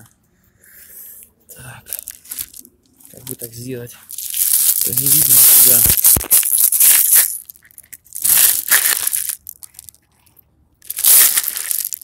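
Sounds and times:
pebbles crunching and rattling: 1.9s - 10.1s, 10.8s - 12.0s.

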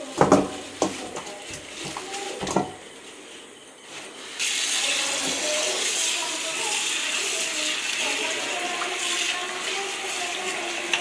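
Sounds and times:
tap water running: 0.0s - 2.9s, 4.2s - 11.0s
plastic bag rustling: 0.0s - 6.3s.

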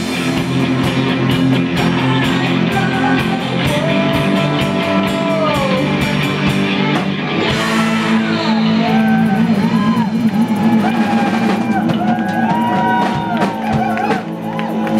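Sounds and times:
bass guitar: 0.0s - 14.9s
drum kit: 0.0s - 14.9s
electric guitars: 0.0s - 14.9s
person singing: 1.6s - 11.4s.

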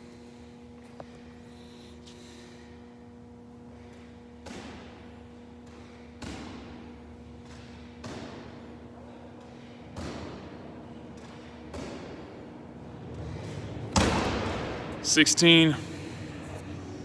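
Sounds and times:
steady hum: 0.0s - 17.0s
medicine ball thuds: 4.4s - 8.7s, 9.9s - 12.4s, 13.9s - 14.9s.

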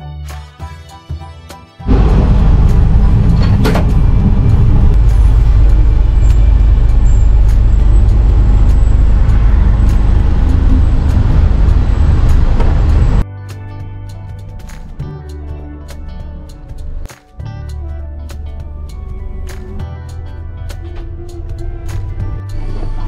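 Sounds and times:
train wheels rumbling on rails: 1.9s - 13.2s.

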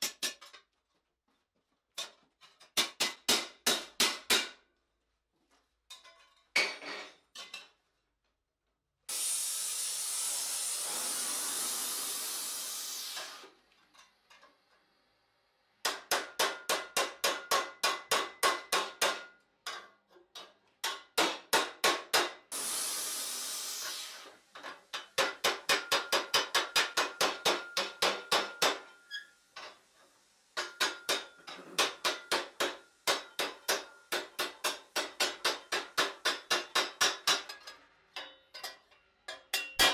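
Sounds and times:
hammer striking metal: 2.8s - 4.6s, 15.8s - 19.8s, 20.8s - 22.4s, 25.0s - 29.1s, 30.6s - 39.9s
steady loud hiss: 9.1s - 13.5s, 22.5s - 28.9s.

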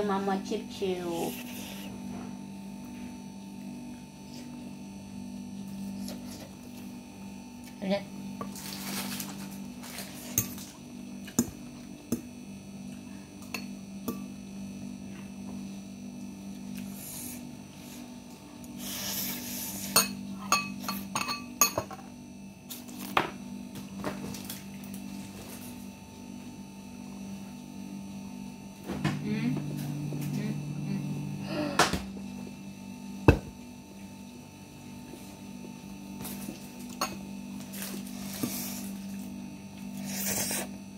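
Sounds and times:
electrical hum: 0.0s - 40.9s
slurping noodles: 1.2s - 2.0s, 40.0s - 40.8s.

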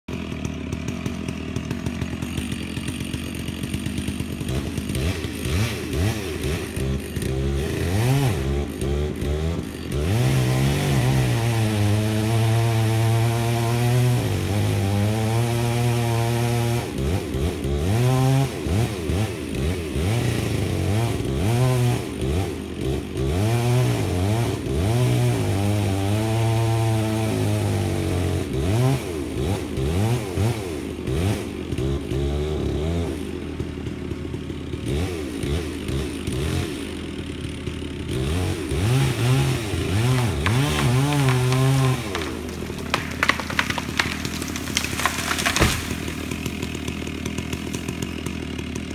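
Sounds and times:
chainsaw cutting wood: 0.0s - 48.9s
track loader engine running: 0.1s - 11.4s, 29.2s - 48.9s.

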